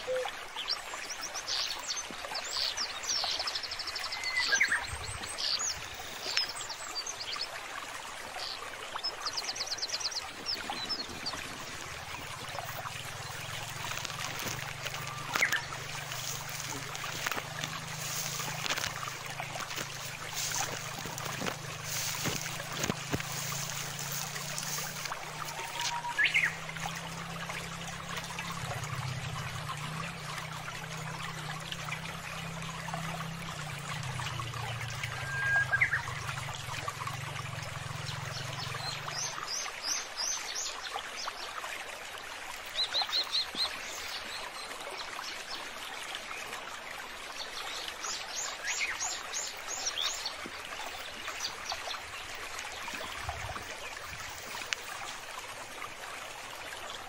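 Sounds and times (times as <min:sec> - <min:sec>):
bird chirps: 0:00.0 - 0:00.3, 0:13.9 - 0:17.4
water flowing and trickling: 0:00.0 - 0:57.0.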